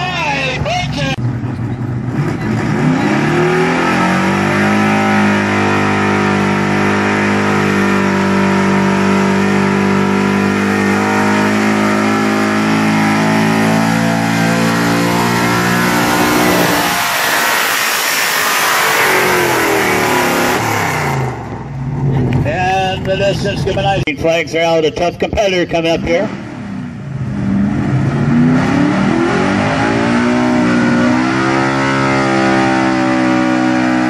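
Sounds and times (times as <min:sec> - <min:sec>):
engine revving: 0:00.0 - 0:24.0, 0:25.7 - 0:34.0
truck engine at high revs: 0:00.0 - 0:24.0, 0:25.6 - 0:34.0
rushing noise: 0:10.2 - 0:22.0.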